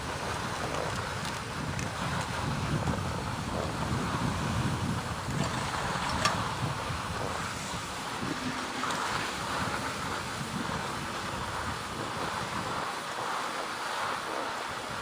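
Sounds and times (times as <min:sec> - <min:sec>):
skis sliding over packed snow: 0:00.0 - 0:15.0
wind on microphone: 0:00.0 - 0:15.0.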